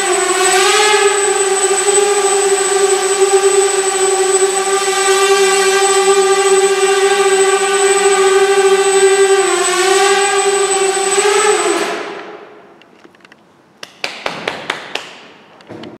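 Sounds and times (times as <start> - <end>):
quadcopter motors buzzing: 0.0 - 12.7.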